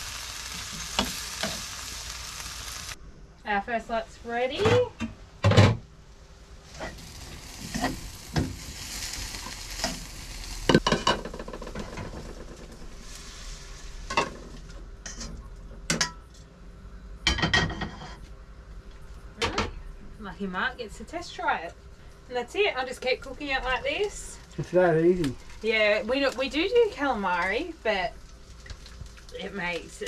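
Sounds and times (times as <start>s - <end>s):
squid sizzling in oil: 0.0s - 3.0s, 6.5s - 15.2s, 25.4s - 30.0s.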